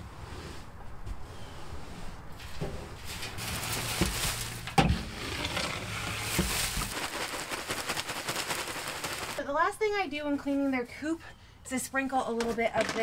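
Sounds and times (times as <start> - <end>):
wood shavings rustling into wheelbarrow: 2.3 - 9.4.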